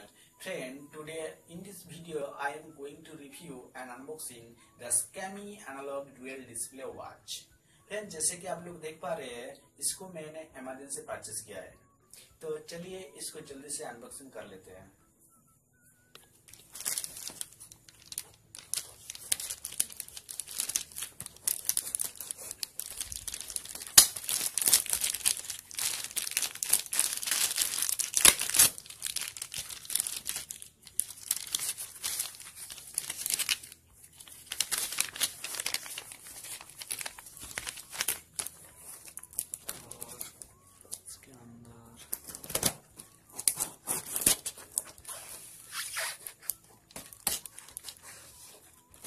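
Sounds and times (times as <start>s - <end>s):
plastic wrapping crinkling and tearing: 16.2s - 41.2s, 42.0s - 49.0s
plastic wrapping snapping: 16.5s - 41.1s, 42.1s - 48.2s.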